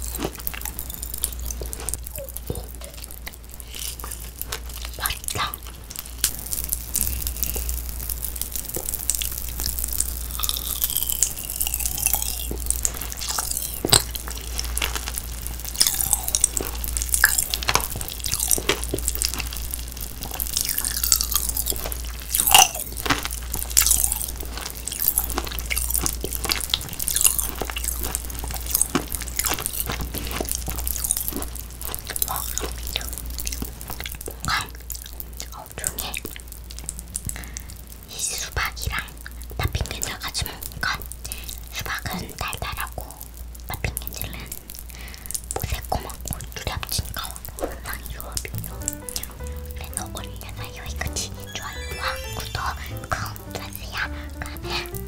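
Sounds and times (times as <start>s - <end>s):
wet chewing and mouth smacking: 0.0s - 7.8s, 8.7s - 37.8s, 38.4s - 51.2s
clicks and crunches of eating: 0.0s - 48.6s
low hum: 48.6s - 55.0s.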